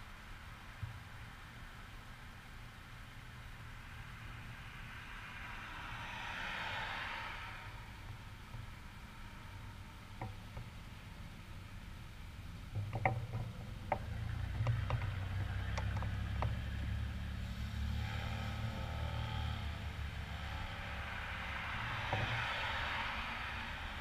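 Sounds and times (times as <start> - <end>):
road traffic rumble: 0.0 - 24.0
vehicle tyre noise passing: 0.0 - 24.0
light clicks and knocks: 12.7 - 16.6.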